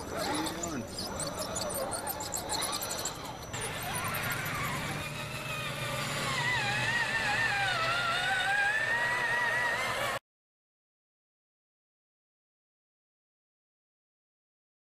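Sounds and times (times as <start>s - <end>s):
rc truck motor whine: 0.0s - 10.2s
steady low hum: 0.0s - 10.2s.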